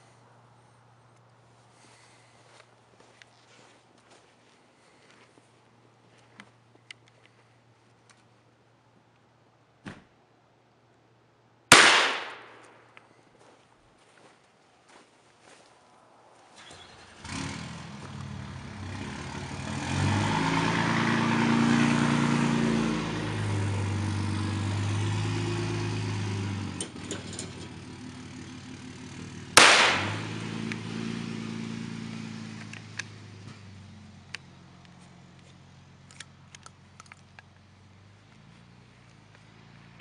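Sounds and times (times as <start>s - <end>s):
shotgun blast: 11.7s - 12.7s, 29.6s - 30.4s.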